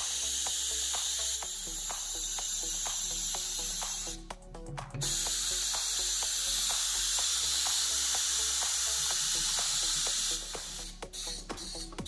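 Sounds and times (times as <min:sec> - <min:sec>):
ion thrusters hissing: 0:05.0 - 0:12.0.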